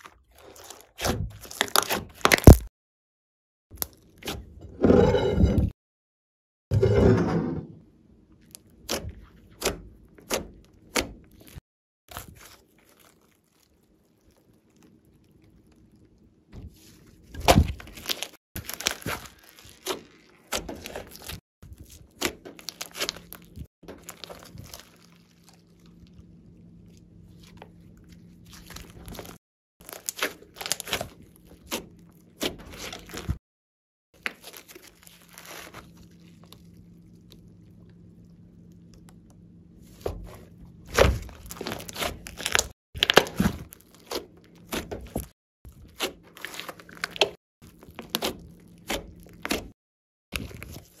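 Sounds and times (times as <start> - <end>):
slime crackling and popping: 1.4 - 2.7, 17.8 - 21.4, 28.5 - 31.8, 40.9 - 44.8.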